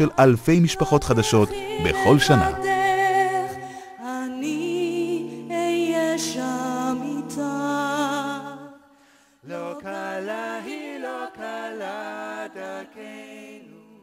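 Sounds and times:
unaccompanied singing voices: 0:00.0 - 0:08.8, 0:09.4 - 0:14.0
held music chord: 0:00.2 - 0:05.5.

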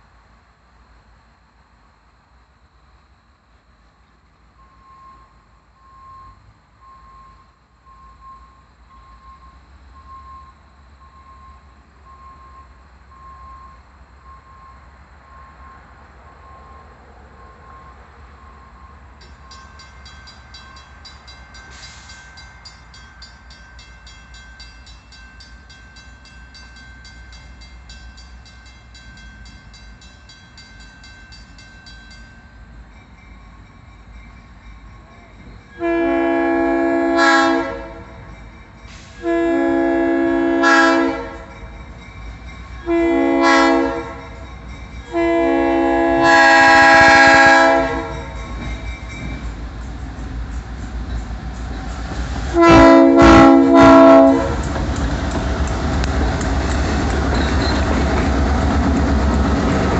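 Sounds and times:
diesel locomotive rumble: 0:03.5 - 0:59.9
crossing warning bell ringing: 0:04.6 - 0:59.9
locomotive horn blasts: 0:35.8 - 0:38.2, 0:39.0 - 0:41.5, 0:42.8 - 0:44.4, 0:45.1 - 0:48.4, 0:52.5 - 0:54.7.

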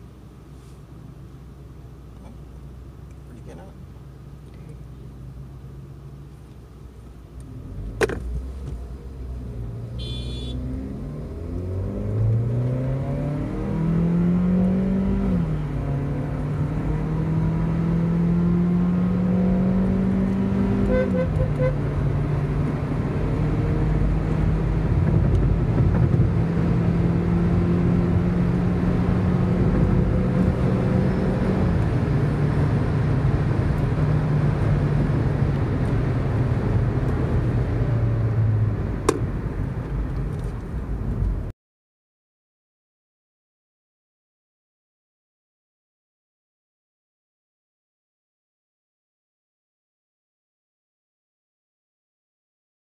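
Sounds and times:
car engine accelerating hard: 0:07.4 - 0:41.5.

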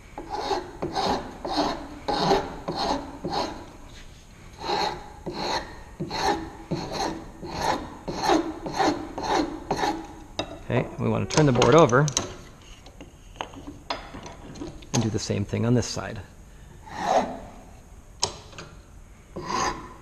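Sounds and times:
file rasping on wood: 0:00.2 - 0:03.6, 0:04.6 - 0:10.2, 0:16.9 - 0:17.4, 0:19.4 - 0:20.0.

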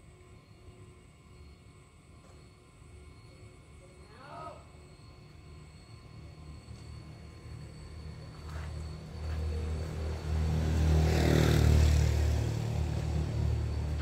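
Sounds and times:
vehicle engine rumble passing: 0:07.1 - 0:14.0.

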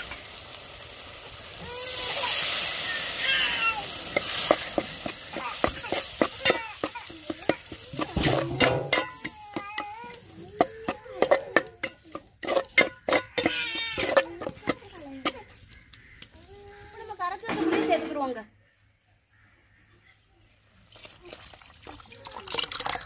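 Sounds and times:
food sizzling: 0:00.0 - 0:18.4, 0:20.6 - 0:23.0
spatula scraping a pan: 0:01.8 - 0:15.7.

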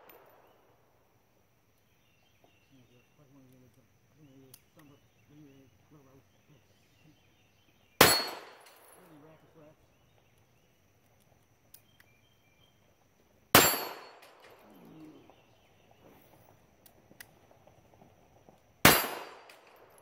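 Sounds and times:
pistol shots: 0:08.0 - 0:09.0, 0:13.5 - 0:14.6, 0:18.8 - 0:20.0.

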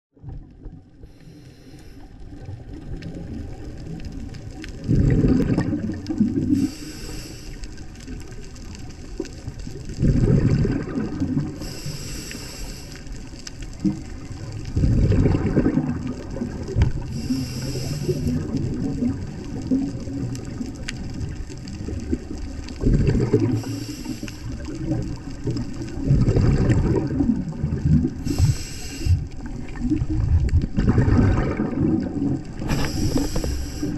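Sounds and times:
regulator hiss on inhale: 0:01.0 - 0:02.3, 0:06.4 - 0:08.1, 0:11.6 - 0:13.4, 0:17.0 - 0:18.6, 0:23.4 - 0:24.8, 0:28.2 - 0:29.5, 0:32.6 - 0:33.9
exhaust bubbles bursting: 0:02.4 - 0:06.7, 0:09.2 - 0:11.6, 0:13.7 - 0:33.9.

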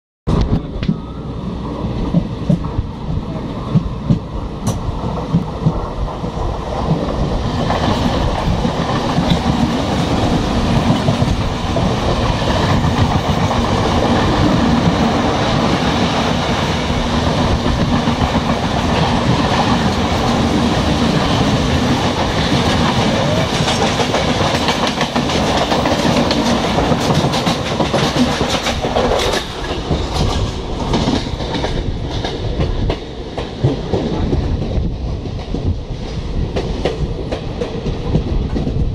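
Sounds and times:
train wheels rumbling on rails: 0:00.3 - 0:38.9
sharp clicks over rail joints: 0:23.5 - 0:34.0.

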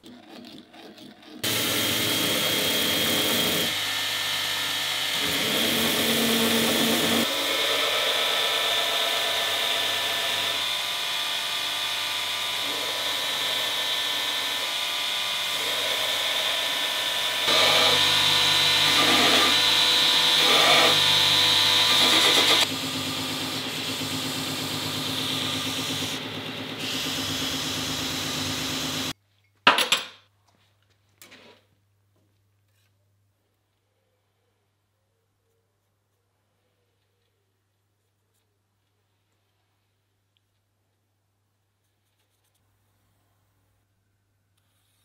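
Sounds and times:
belt grinder grinding steel: 0:00.0 - 0:29.1.

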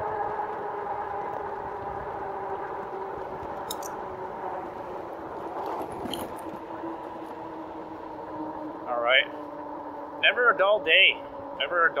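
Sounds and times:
tyre and wind noise: 0:00.0 - 0:08.8
electric bike motor whining: 0:00.0 - 0:12.0.

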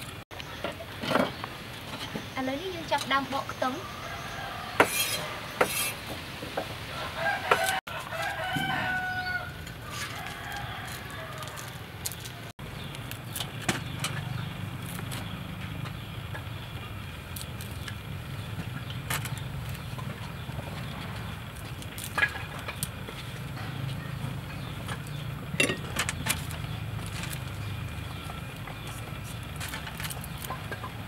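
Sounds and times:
rooster crowing: 0:03.8 - 0:05.6, 0:06.9 - 0:11.9.

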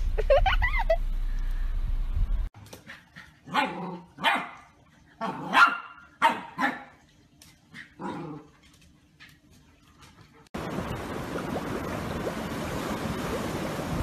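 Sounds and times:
puppy barking: 0:03.5 - 0:06.9.

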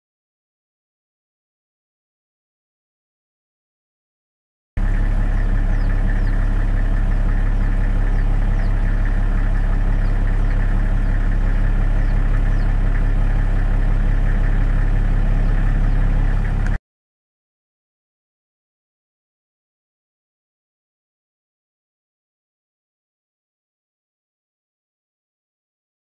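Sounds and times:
engine idling hum: 0:04.8 - 0:16.8.

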